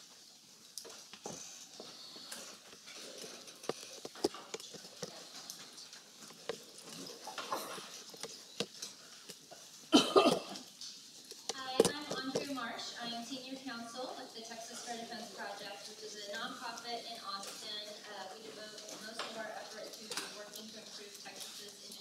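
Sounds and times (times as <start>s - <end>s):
clicks and shuffling: 0.8s - 9.9s, 10.5s - 12.7s
footsteps: 0.8s - 12.7s.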